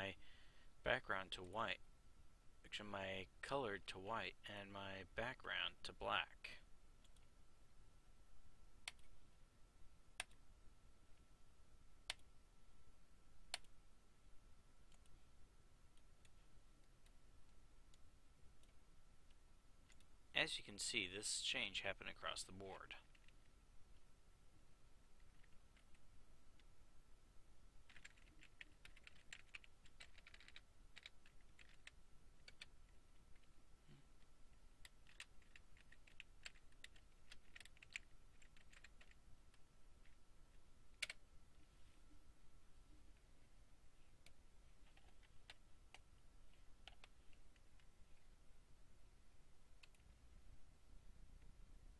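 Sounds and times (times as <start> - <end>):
computer mouse clicking: 8.8 - 9.2, 10.2 - 10.4, 12.0 - 12.3, 13.5 - 13.8, 14.9 - 15.2, 27.9 - 33.5, 34.2 - 40.2, 40.9 - 41.2, 44.2 - 47.9, 49.8 - 50.2.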